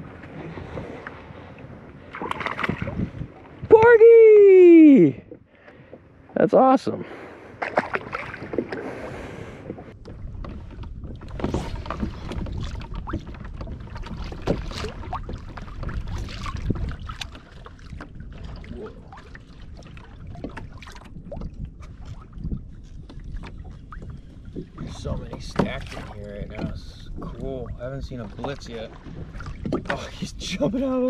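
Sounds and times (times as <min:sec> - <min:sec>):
water lapping against hull: 0:00.0 - 0:31.0
water splash: 0:02.1 - 0:04.0, 0:07.6 - 0:09.2.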